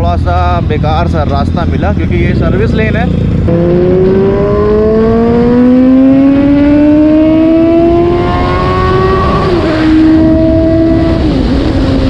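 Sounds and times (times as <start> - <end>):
motorcycle engine accelerating: 0.4 - 12.0
wind noise on microphone: 3.4 - 12.0.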